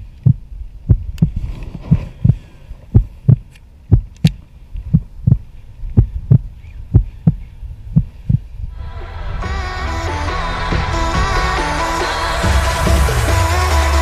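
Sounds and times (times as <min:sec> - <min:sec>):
heartbeat thumps: 0:00.0 - 0:08.6.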